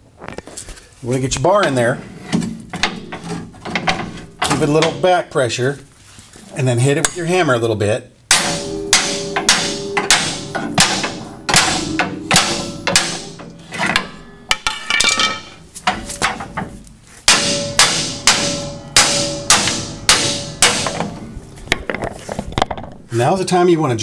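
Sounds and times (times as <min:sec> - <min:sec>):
sledgehammer clanking on metal: 0:01.6 - 0:05.2, 0:08.3 - 0:22.8.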